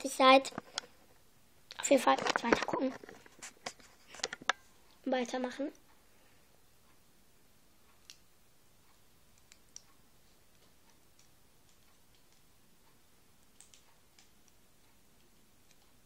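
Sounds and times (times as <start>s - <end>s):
faint small clicks: 13.4s - 16.0s.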